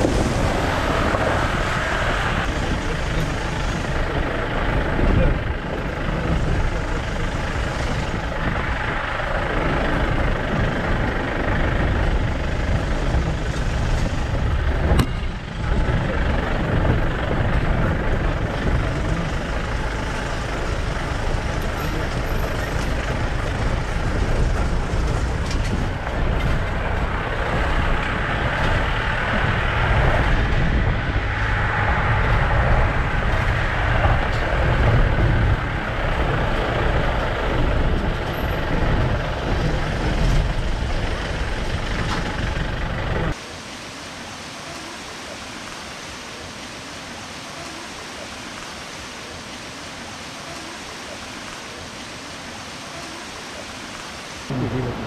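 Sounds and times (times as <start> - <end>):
car engine low rumble: 0.0 - 43.4
road noise: 0.0 - 55.0.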